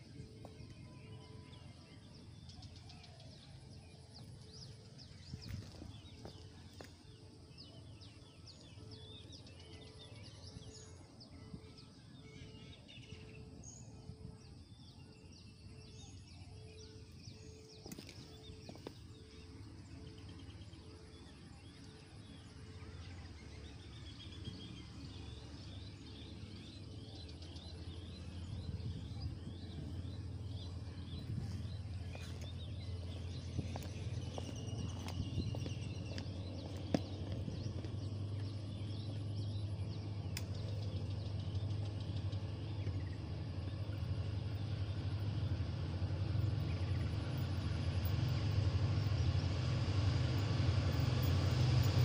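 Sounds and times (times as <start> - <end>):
low rumble: 26.2 - 52.0.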